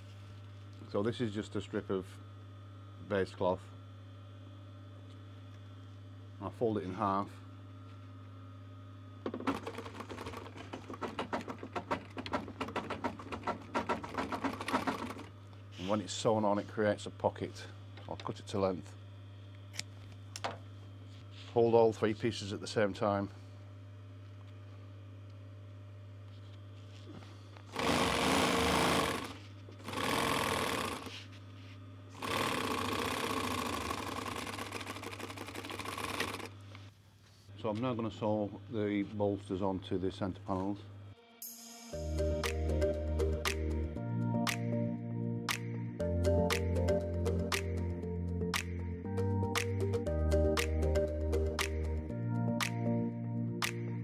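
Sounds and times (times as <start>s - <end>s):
steady low hum: 0.0s - 29.9s, 36.5s - 54.0s
sewing machine motor hum: 9.0s - 16.1s, 27.7s - 31.3s, 32.1s - 36.8s.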